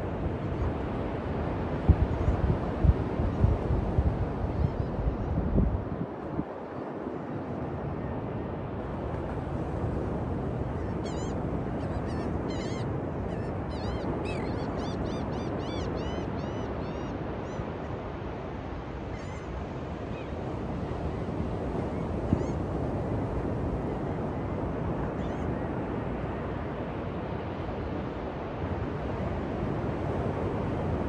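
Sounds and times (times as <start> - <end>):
wind noise: 0.0 - 18.5
ocean surf: 0.0 - 31.0.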